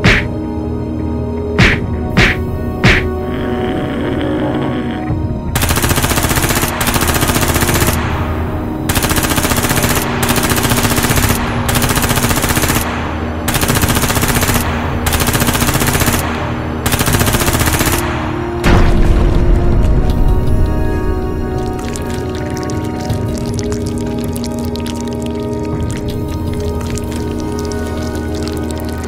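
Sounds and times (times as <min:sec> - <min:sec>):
background music: 0:00.0 - 0:29.0
machine-gun fire: 0:05.6 - 0:08.2, 0:08.9 - 0:19.1
heavy low boom: 0:18.6 - 0:22.0.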